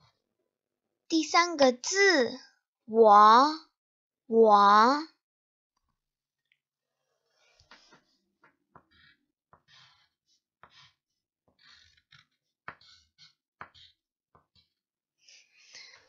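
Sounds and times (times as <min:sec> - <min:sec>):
pencil scratching on paper: 0:06.9 - 0:16.0.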